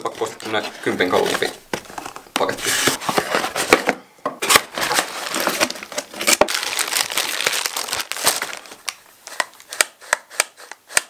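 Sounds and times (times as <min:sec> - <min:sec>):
bubble wrap crinkling: 0:04.4 - 0:10.1.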